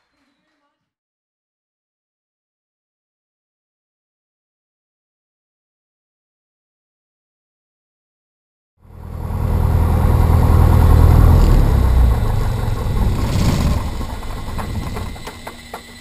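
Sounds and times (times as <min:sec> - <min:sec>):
aircraft engine and propeller: 0:08.8 - 0:16.0.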